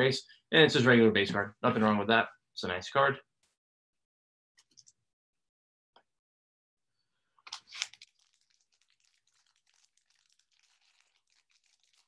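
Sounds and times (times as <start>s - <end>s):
card pack wrapper crinkling: 7.5s - 12.0s.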